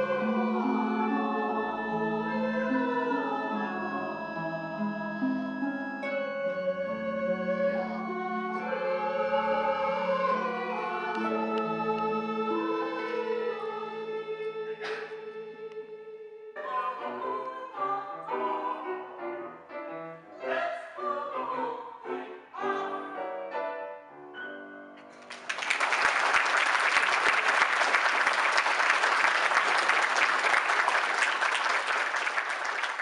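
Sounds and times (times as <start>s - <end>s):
singing with accompaniment: 0.0s - 23.8s
audience applauding: 25.2s - 33.0s.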